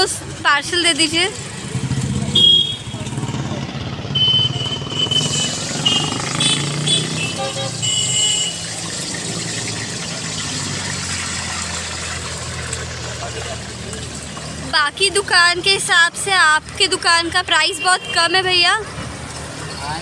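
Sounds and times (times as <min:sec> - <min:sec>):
traffic engines running: 0:00.0 - 0:20.0.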